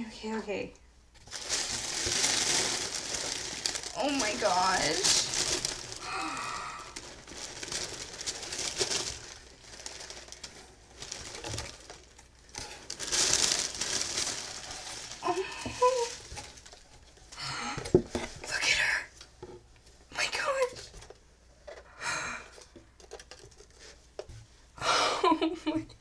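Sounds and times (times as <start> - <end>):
tissue paper crinkling: 1.2 - 17.4.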